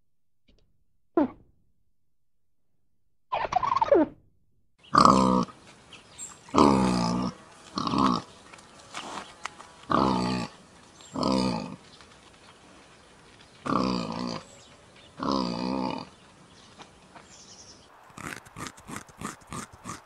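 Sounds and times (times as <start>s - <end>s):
wild boar grunting: 4.8s - 5.6s, 6.5s - 8.3s, 9.9s - 11.8s, 13.6s - 14.5s, 15.2s - 16.2s, 18.1s - 20.0s.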